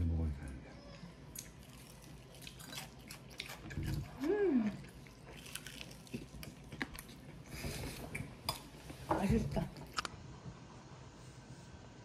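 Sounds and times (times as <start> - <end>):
fried chicken crunching: 5.2 - 7.2.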